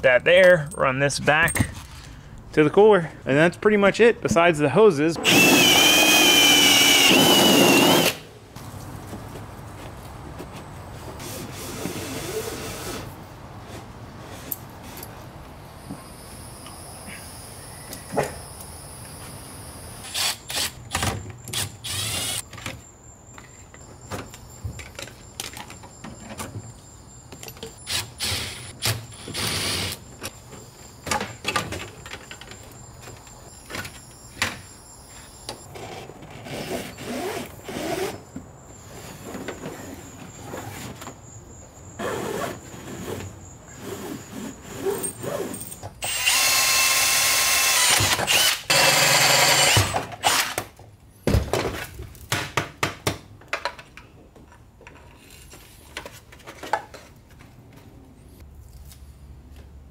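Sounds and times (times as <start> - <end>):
cordless drill running: 5.2 - 8.2, 46.0 - 50.5.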